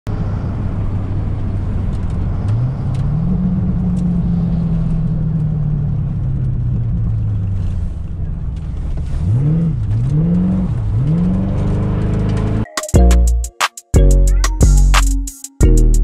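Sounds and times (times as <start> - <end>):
car engine revving: 0.1 - 12.6
tyre and road noise: 0.1 - 12.7.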